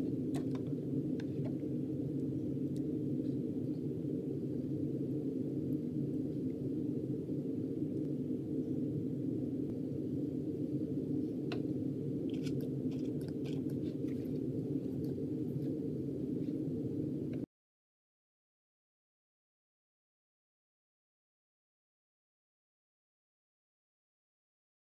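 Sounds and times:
steady low hum: 0.0 - 17.5.

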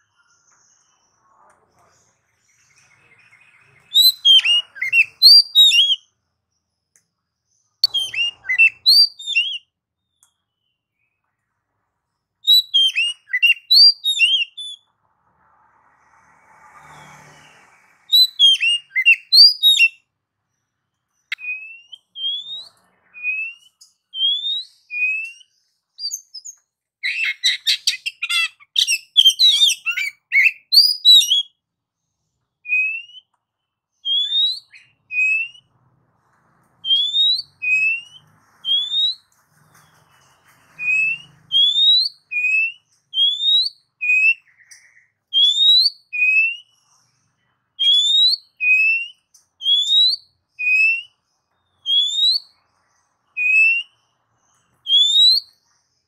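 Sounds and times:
fast tumbling birdsong: 0.0 - 56.0
bird whistling song: 2.4 - 6.1, 7.8 - 11.2, 12.4 - 14.9, 16.9 - 20.1, 21.1 - 31.6, 32.6 - 33.4, 34.0 - 35.7, 36.8 - 47.1, 47.8 - 55.8.

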